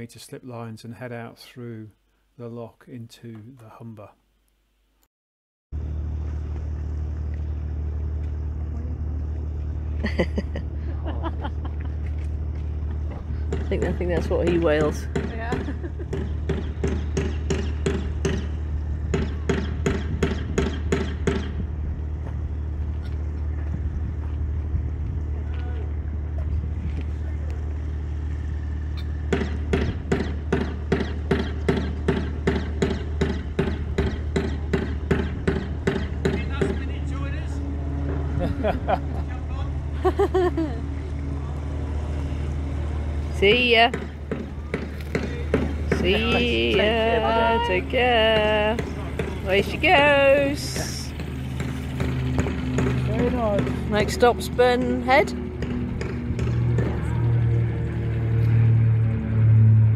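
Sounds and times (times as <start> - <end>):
engine humming: 5.7 - 59.9
person speaking: 45.9 - 48.8.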